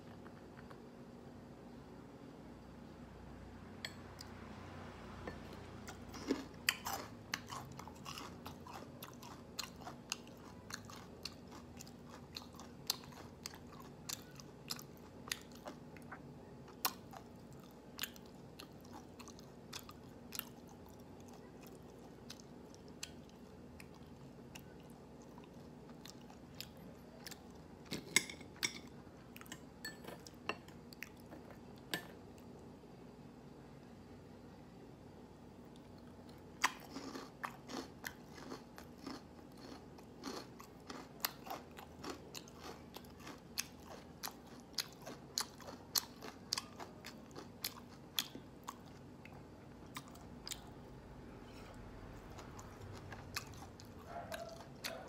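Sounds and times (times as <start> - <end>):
person chewing crunchy food: 5.3 - 29.6, 35.7 - 55.0.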